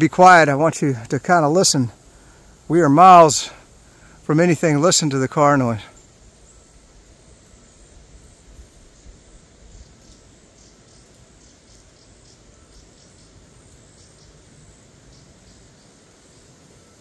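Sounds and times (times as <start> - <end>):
person speaking: 0.0 - 2.0, 2.7 - 3.6, 4.2 - 6.0
insects chirping: 0.0 - 17.0.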